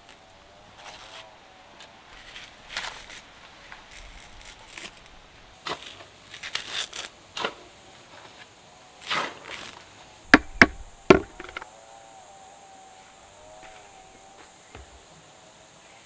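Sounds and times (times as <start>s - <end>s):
coconut husk fibres ripping: 0.0s - 7.6s
sharp knocks: 10.3s - 11.6s.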